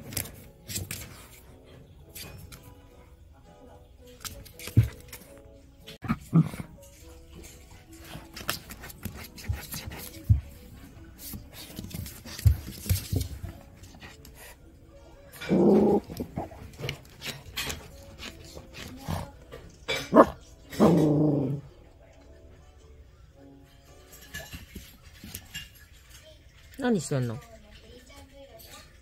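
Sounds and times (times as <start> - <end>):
puppy sniffing and scuffling: 4.2 - 14.7, 15.4 - 20.4
puppy low growl: 15.3 - 16.6, 19.0 - 21.8.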